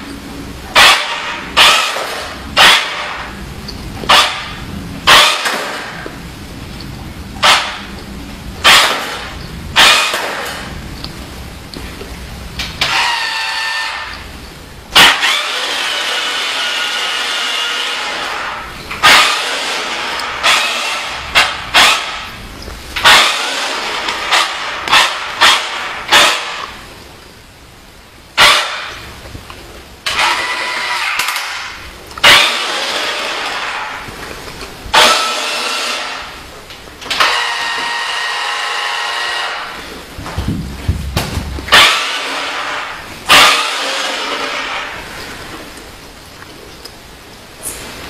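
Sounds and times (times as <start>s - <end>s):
toy electric motor whining: 15.0s - 18.4s.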